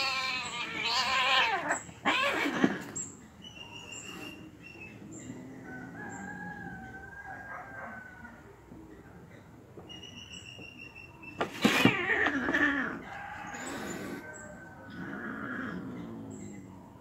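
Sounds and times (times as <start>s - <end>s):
cats screeching while fighting: 0.0s - 3.0s, 11.4s - 14.3s.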